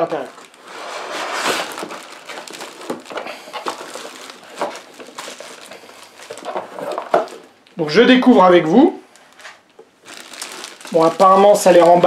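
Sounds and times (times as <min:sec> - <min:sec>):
plastic wrap crinkling: 0:00.0 - 0:12.0
packing inserts knocking cardboard box: 0:00.1 - 0:07.5.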